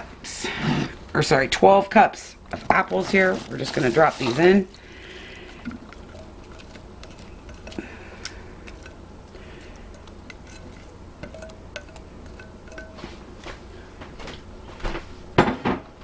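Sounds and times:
spatula scraping metal bowl: 0:09.6 - 0:13.1.

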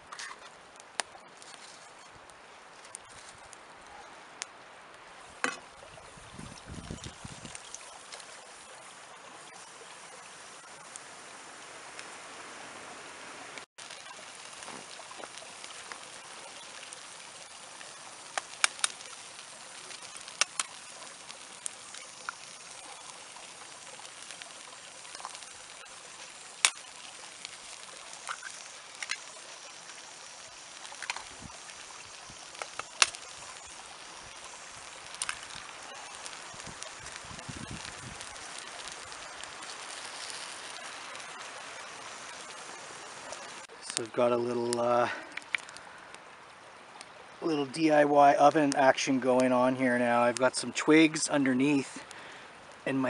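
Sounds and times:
campfire crackling and popping: 0:00.0 - 0:53.0.

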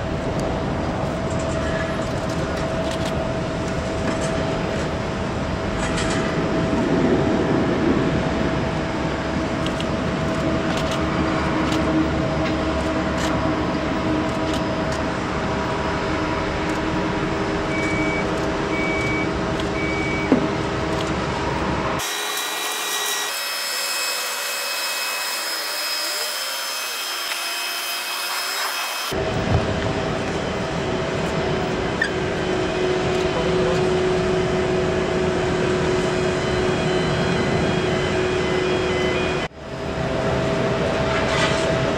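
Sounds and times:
aircraft and vehicles humming: 0:00.0 - 0:22.4, 0:28.3 - 0:41.9
high steady whining tones: 0:00.0 - 0:41.9
short beeps: 0:17.7 - 0:20.3.

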